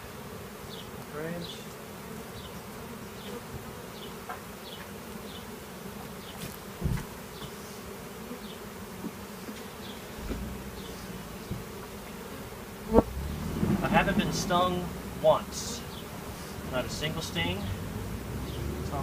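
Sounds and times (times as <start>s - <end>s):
bees buzzing: 0.0s - 19.0s
dull knock: 6.8s - 7.1s
low rumble: 13.0s - 18.9s.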